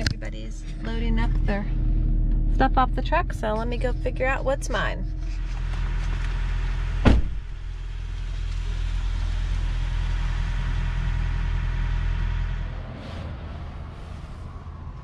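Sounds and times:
vehicle engine idling: 0.0 - 15.0
sharp knock: 7.0 - 7.4.

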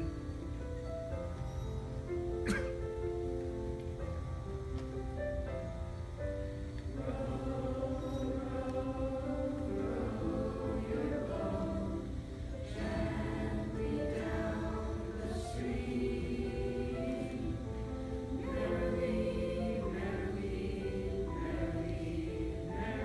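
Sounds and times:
mixed choir singing: 6.8 - 23.0.

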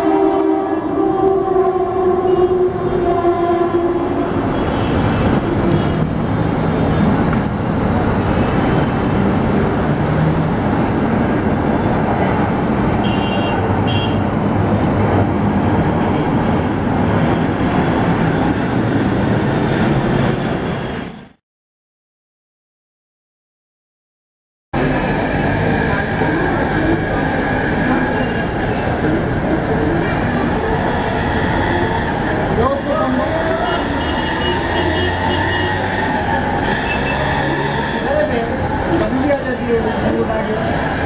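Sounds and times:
jet plane passing overhead: 13.7 - 21.4, 24.8 - 37.8.

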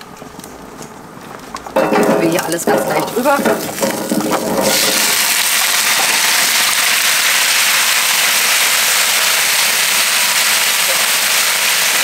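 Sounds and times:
vegetables sizzling on hot plate: 2.7 - 12.0.

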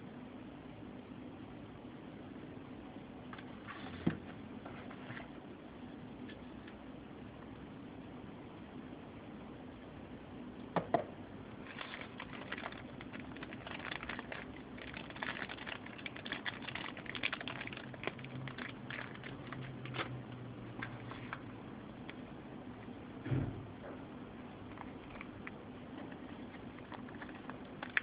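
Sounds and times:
plastic bag crinkling: 11.6 - 21.5, 24.7 - 28.0.

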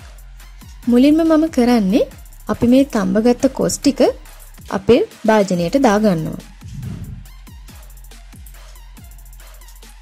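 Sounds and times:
deep kick drums: 6.4 - 7.7
bass drone: 6.6 - 7.4.

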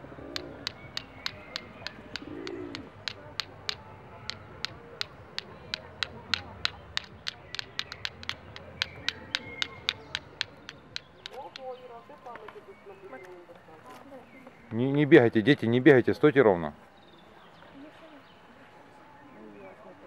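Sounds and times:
faint birds calling: 0.0 - 14.9
nuts clicking together: 0.4 - 11.8.

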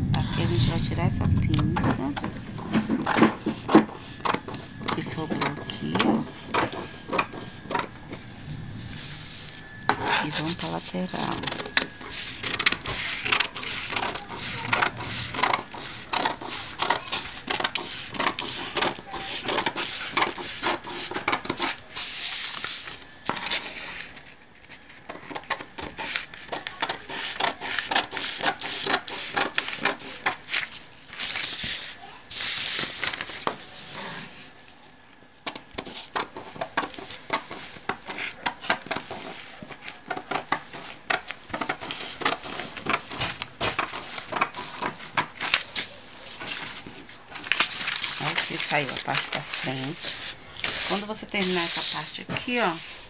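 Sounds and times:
paper rustling: 9.0 - 34.4, 35.8 - 53.0
scissors snipping paper: 10.0 - 24.0, 25.1 - 33.5.

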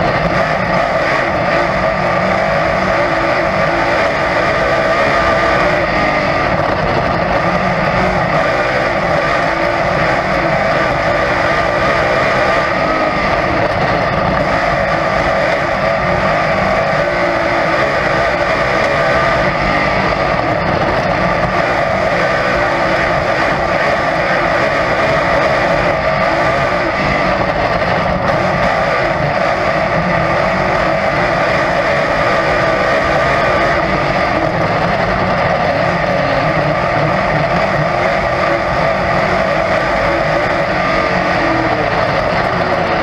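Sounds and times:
race car engine droning: 0.0 - 43.0.

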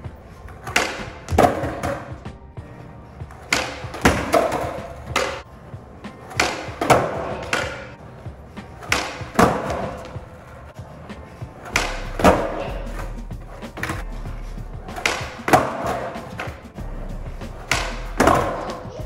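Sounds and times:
skateboard landing on concrete: 0.1 - 2.6, 3.2 - 14.1, 14.8 - 16.7, 17.5 - 18.8
skateboard tail snapping: 0.5 - 2.4, 3.3 - 5.4, 6.0 - 8.0, 8.6 - 10.4, 11.1 - 14.0, 14.8 - 16.7, 17.5 - 18.8.

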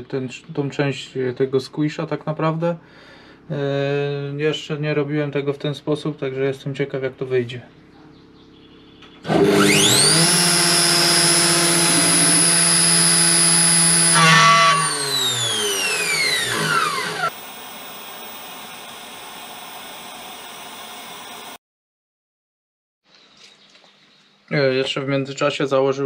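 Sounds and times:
milling machine spindle whine: 9.3 - 21.6.

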